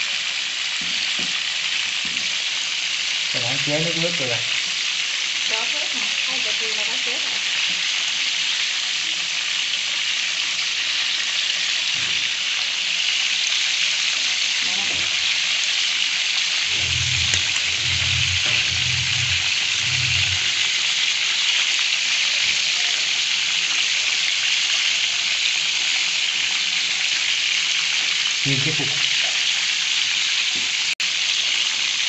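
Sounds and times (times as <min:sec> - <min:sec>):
deep-frying sizzle: 0:00.0 - 0:32.0.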